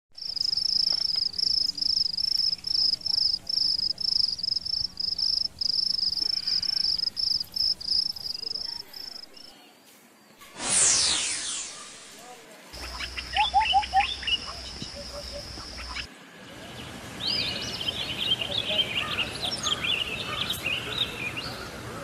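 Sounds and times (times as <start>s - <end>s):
insect chirping in pulses: 0.2s - 9.4s, 10.6s - 12.2s, 12.8s - 16.1s.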